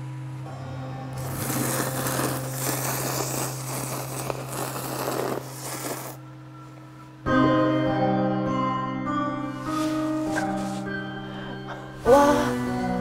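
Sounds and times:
noodles being slurped: 0:01.2 - 0:06.2.

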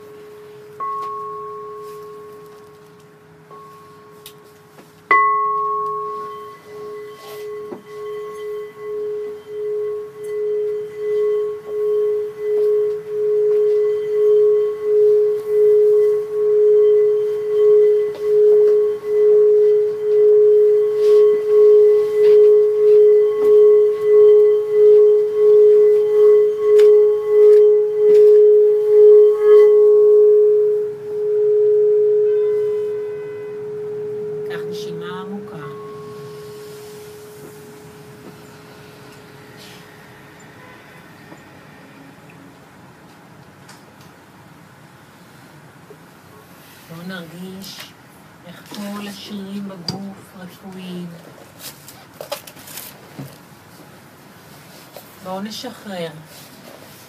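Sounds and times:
singing bowl struck: 0:00.0 - 0:42.3
singing bowl rim humming: 0:00.0 - 0:43.0, 0:48.5 - 0:51.3.

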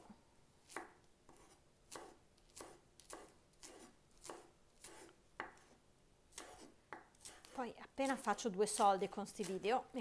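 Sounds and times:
knife slicing onion on board: 0:00.6 - 0:09.8.

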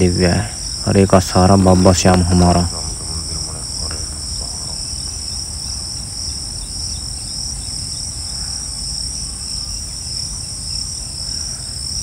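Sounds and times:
low steady rumble: 0:00.0 - 0:08.3
insects chirring: 0:00.0 - 0:12.0.

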